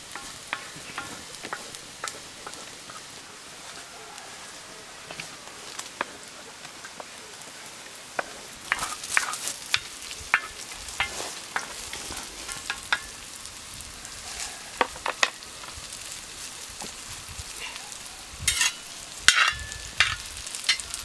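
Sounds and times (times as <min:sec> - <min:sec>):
wooden spoon scraping and knocking pan: 0:00.0 - 0:03.2, 0:08.2 - 0:13.2, 0:14.8 - 0:15.8, 0:18.5 - 0:21.0
vegetables sizzling in hot pan: 0:00.0 - 0:21.0.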